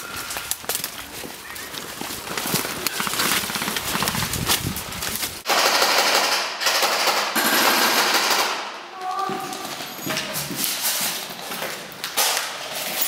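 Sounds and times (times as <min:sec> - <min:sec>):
footsteps through leaves: 0:00.0 - 0:05.5
airsoft rifle full-auto bursts: 0:05.5 - 0:08.7.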